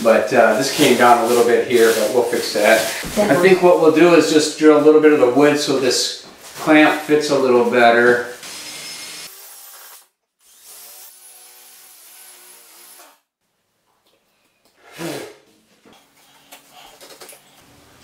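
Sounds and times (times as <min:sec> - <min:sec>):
cordless drill boring into wood: 0:08.4 - 0:13.2.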